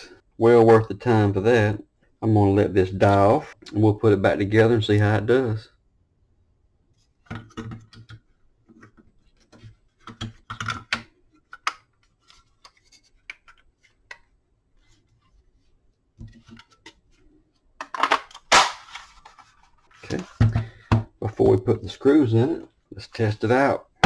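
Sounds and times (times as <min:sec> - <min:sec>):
plastic clicks and knocks: 0:07.2 - 0:12.0.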